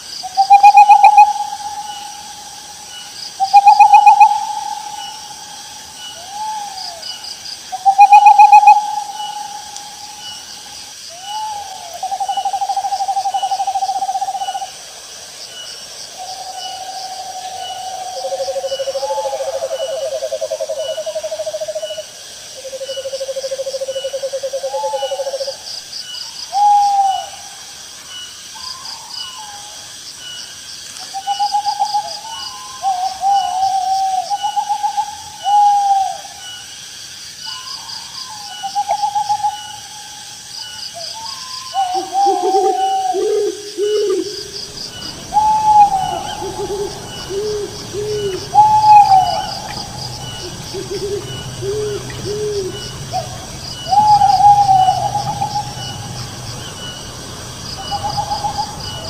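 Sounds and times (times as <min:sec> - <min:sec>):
owl hooting: 0:00.2 - 0:14.7, 0:26.5 - 0:27.4, 0:31.2 - 0:36.6, 0:41.2 - 0:57.0, 0:57.7 - 0:59.0.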